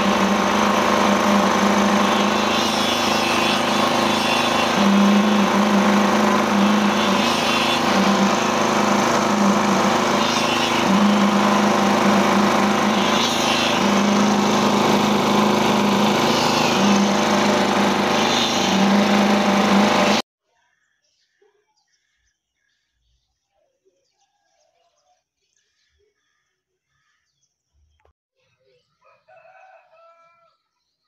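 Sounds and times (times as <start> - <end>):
concrete vibrator engine humming: 0.0 - 20.2.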